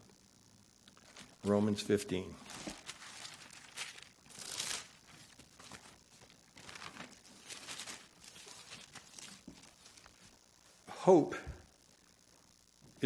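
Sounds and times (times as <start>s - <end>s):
thin pages rustling: 2.4s - 10.4s.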